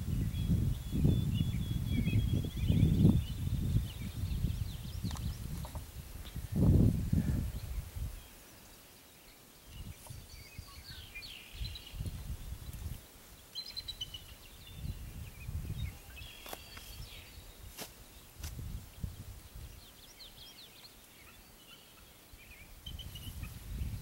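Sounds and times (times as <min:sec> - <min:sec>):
wind buffeting microphone: 0:00.0 - 0:08.3, 0:09.7 - 0:13.1, 0:13.8 - 0:17.8, 0:18.4 - 0:20.1, 0:22.8 - 0:24.0
birds chirping: 0:00.0 - 0:24.0.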